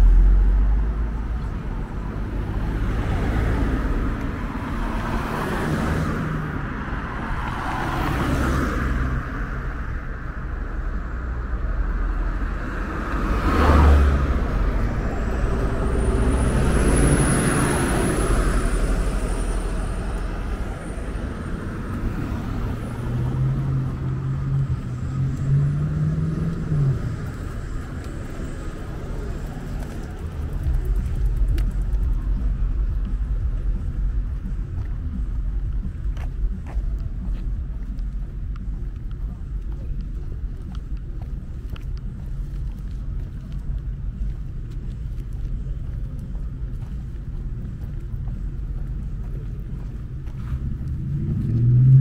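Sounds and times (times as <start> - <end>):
low drone rising in pitch: 0.0 - 5.4, 8.8 - 39.4, 47.4 - 52.0
cars and buses passing: 0.0 - 52.0.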